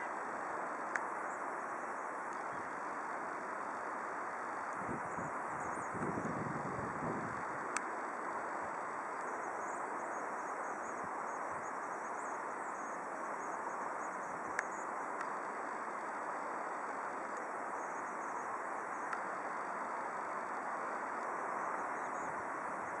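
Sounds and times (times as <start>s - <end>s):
insects chirping faintly: 0.0s - 23.0s
faint clicks: 0.7s - 1.4s, 2.3s - 2.5s, 14.5s - 15.4s, 19.0s - 19.3s.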